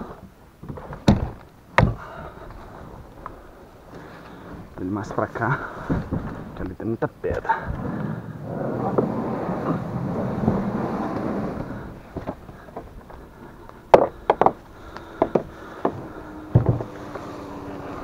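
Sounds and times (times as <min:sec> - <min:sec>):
hull knocking and clattering: 0:05.6 - 0:07.8, 0:09.7 - 0:17.3
kayak hull scraping through grass: 0:07.7 - 0:13.6, 0:15.6 - 0:18.0.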